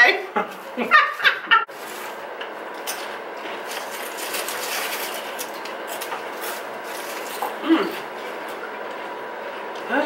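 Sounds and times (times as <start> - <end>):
chips being chewed: 3.4 - 8.6.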